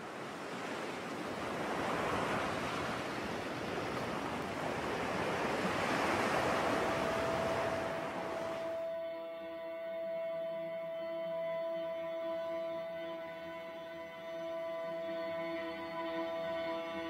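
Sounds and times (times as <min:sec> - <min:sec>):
sea waves breaking: 0:00.0 - 0:08.9
held musical note: 0:06.3 - 0:17.0.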